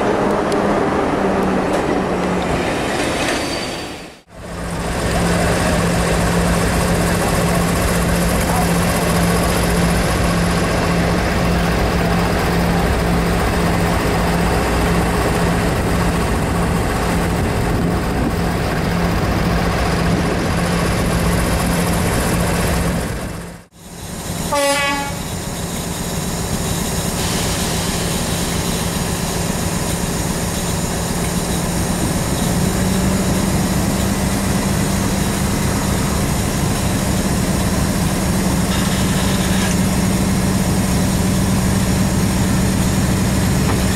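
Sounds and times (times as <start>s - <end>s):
diesel locomotive engine hum: 0.0s - 43.9s
locomotive horn toot: 24.5s - 25.3s.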